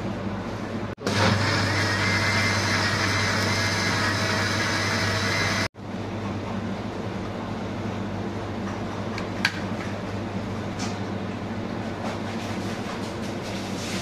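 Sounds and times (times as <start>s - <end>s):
mixer grinder motor whirring: 1.0s - 5.7s.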